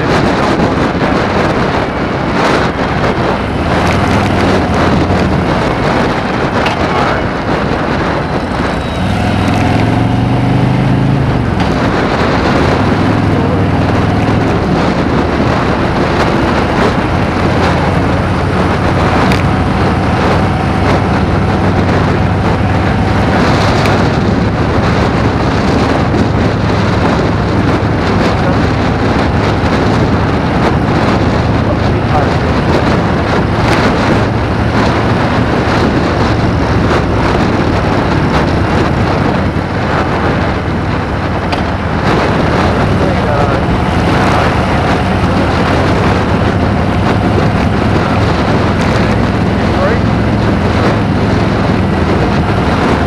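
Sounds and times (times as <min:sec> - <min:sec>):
motorcycle engine humming: 0:00.0 - 0:53.0
wind buffeting microphone: 0:00.0 - 0:53.0.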